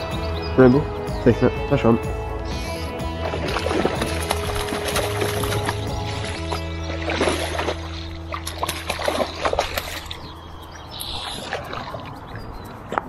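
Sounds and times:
fish splashing at water surface: 0:03.2 - 0:10.2.

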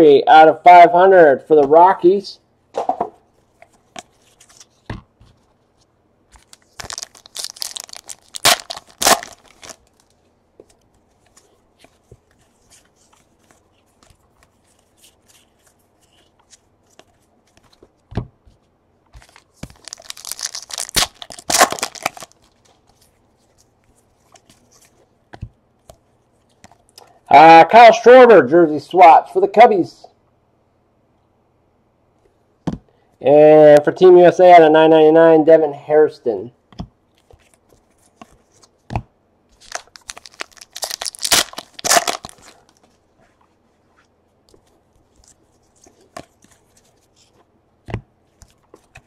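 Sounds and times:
cards clicking and rustling: 0:06.3 - 0:18.0, 0:19.1 - 0:23.7, 0:39.6 - 0:42.9
card pack wrappers tearing: 0:06.4 - 0:10.2, 0:19.2 - 0:22.8, 0:39.6 - 0:42.8.

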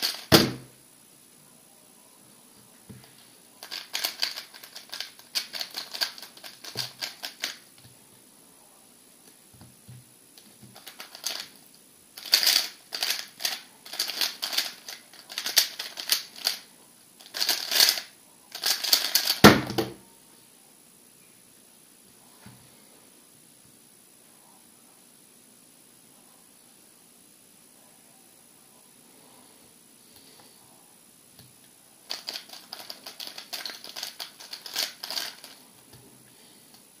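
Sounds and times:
cube thump: 0:00.1 - 0:00.7, 0:19.4 - 0:20.0
plastic puzzle cube clicking: 0:03.6 - 0:07.6, 0:12.2 - 0:16.6.

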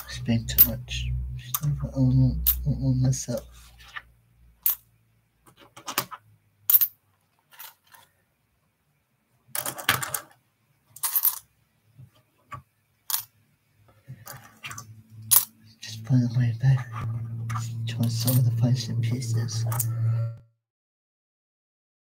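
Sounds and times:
coins clinking and clattering: 0:04.6 - 0:04.8, 0:05.8 - 0:08.0, 0:09.6 - 0:10.3, 0:11.0 - 0:11.5, 0:13.1 - 0:13.3, 0:14.2 - 0:15.5.

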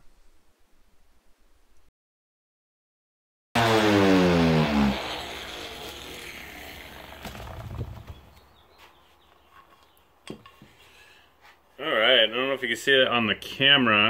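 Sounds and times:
sander motor spinning down: 0:03.6 - 0:08.4.

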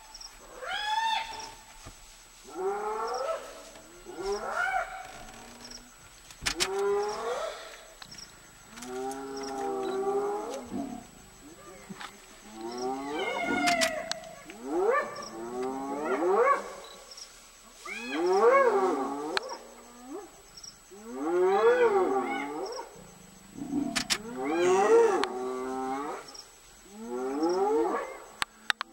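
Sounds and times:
hyenas calling: 0:12.6 - 0:16.8.

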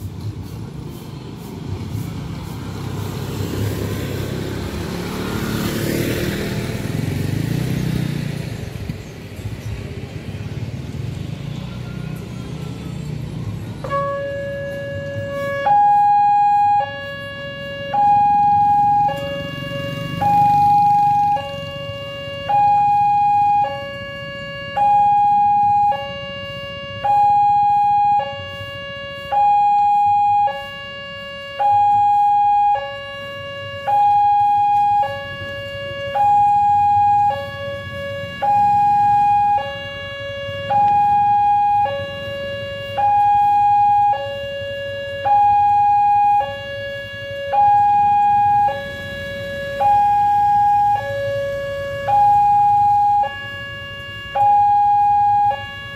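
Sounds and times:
low rumble of engines: 0:00.0 - 0:55.9
two-tone electronic warning alarm: 0:13.8 - 0:55.9.

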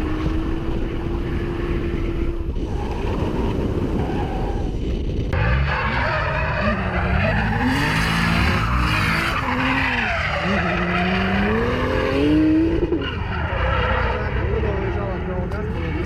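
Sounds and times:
tyres skidding: 0:00.0 - 0:16.0
car engine revving: 0:05.4 - 0:16.0.

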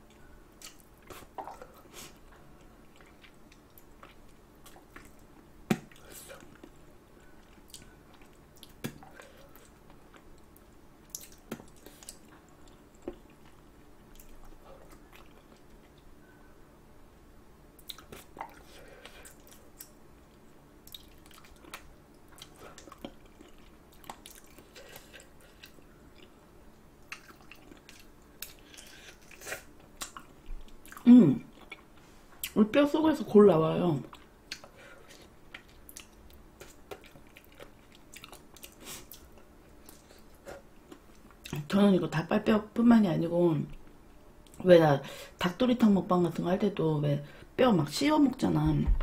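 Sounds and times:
wet chewing mouth sounds: 0:00.6 - 0:16.1, 0:17.8 - 0:20.0, 0:20.8 - 0:26.4, 0:27.0 - 0:32.6, 0:34.1 - 0:41.6.

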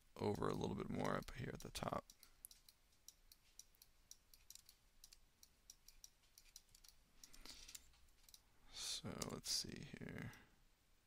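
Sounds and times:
mouse and keyboard clicks: 0:00.9 - 0:08.4.

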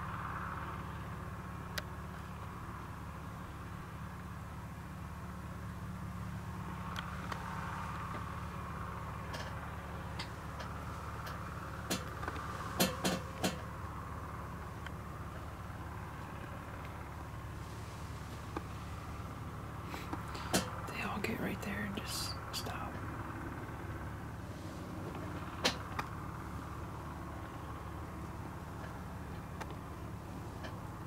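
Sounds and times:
low outdoor rumble: 0:00.0 - 0:31.0
sharp clicks and knocks: 0:10.2 - 0:13.7, 0:20.1 - 0:20.8.

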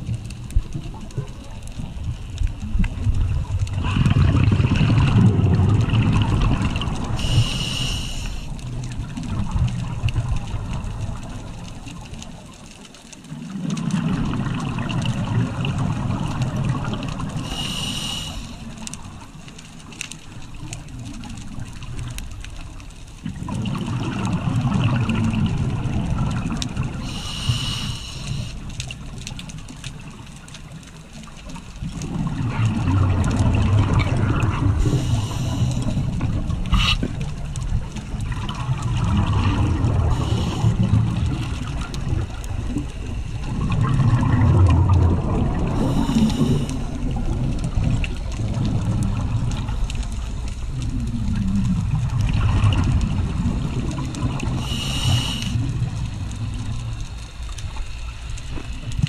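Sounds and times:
exhaust bubbles bubbling: 0:00.0 - 0:07.6, 0:08.5 - 0:12.4, 0:13.3 - 0:19.4, 0:20.3 - 0:59.0
regulator hissing: 0:07.2 - 0:08.5, 0:17.4 - 0:18.7, 0:27.0 - 0:28.6, 0:54.6 - 0:55.7.

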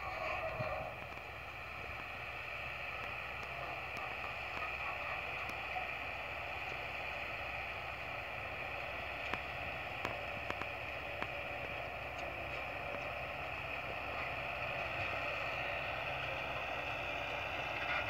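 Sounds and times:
tractor engine running: 0:00.0 - 0:18.0
sharp ticks: 0:09.2 - 0:11.3.

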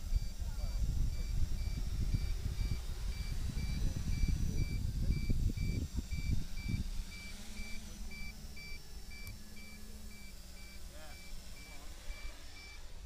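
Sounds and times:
wind buffeting on microphone: 0:00.0 - 0:08.0
electronic buzzer beeping: 0:00.0 - 0:13.0
steady low hum: 0:00.0 - 0:13.0.

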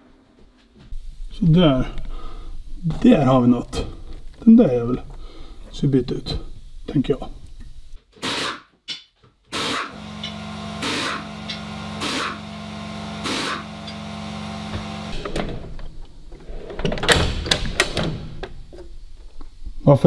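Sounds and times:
electric motor humming: 0:09.8 - 0:15.4.

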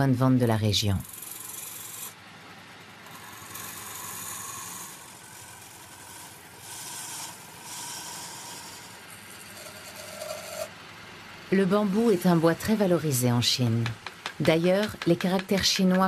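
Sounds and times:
lathe humming: 0:03.0 - 0:10.7, 0:11.4 - 0:16.0
chisel scraping bamboo: 0:03.1 - 0:10.7, 0:13.8 - 0:16.0.

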